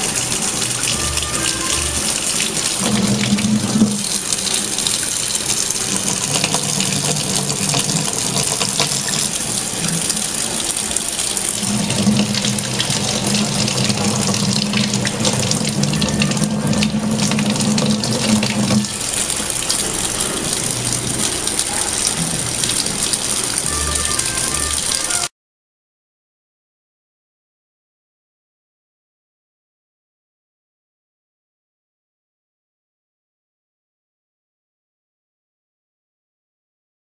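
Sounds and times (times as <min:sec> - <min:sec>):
faucet water splashing into sink: 0:00.0 - 0:25.3.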